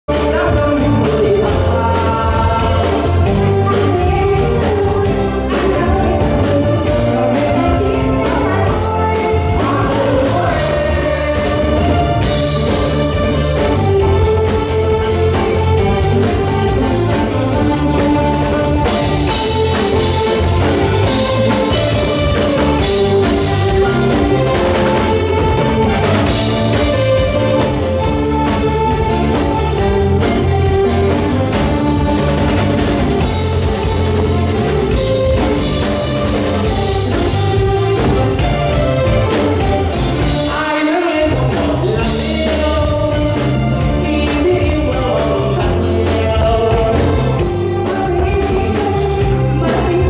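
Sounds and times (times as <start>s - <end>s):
singing over a beat: 0.0s - 12.4s, 40.2s - 50.0s.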